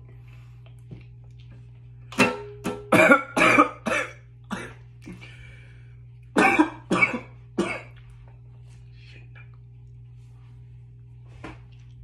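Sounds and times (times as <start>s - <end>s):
man coughing harshly: 2.9s - 4.8s, 6.4s - 7.9s.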